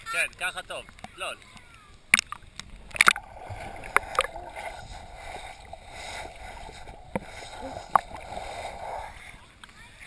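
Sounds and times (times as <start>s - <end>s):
muffled underwater water rush: 2.0s - 9.6s.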